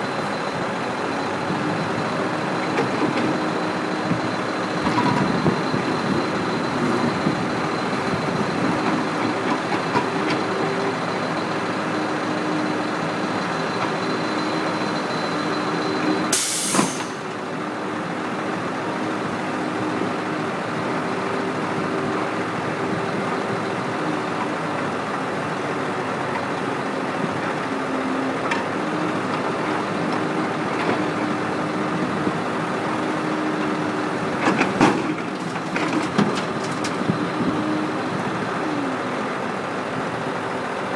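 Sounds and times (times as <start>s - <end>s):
excavator diesel engine running: 0.0s - 40.9s
loud hiss of air: 16.3s - 17.2s.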